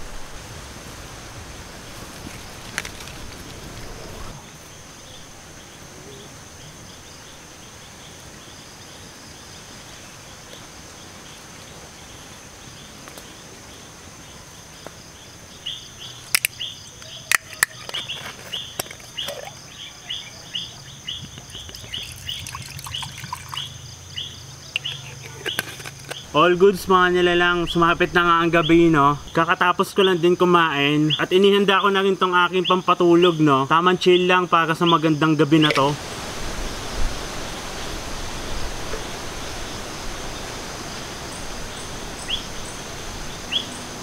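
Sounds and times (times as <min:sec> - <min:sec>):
insects droning: 0:00.0 - 0:44.0
rapid chirping calls: 0:15.5 - 0:30.2, 0:41.2 - 0:44.0
sharp snaps: 0:16.3 - 0:18.2.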